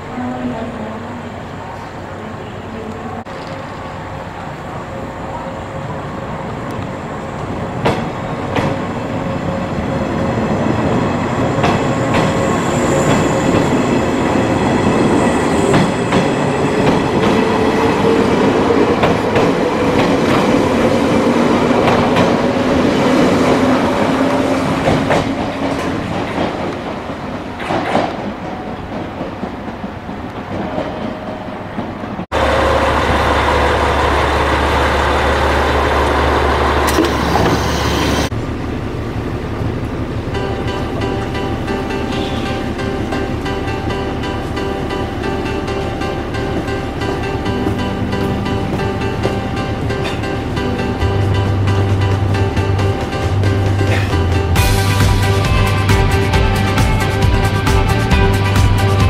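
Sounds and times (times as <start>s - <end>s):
train rumble: 0.0s - 59.0s
train motor whine: 32.4s - 38.6s.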